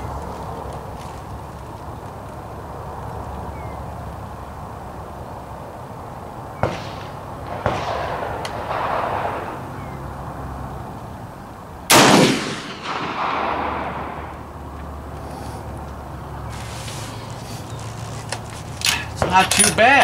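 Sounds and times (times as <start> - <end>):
rifle shot with echo: 6.6 - 10.0, 11.9 - 14.5
quieter gunshots with echo: 6.6 - 10.1, 11.9 - 14.6.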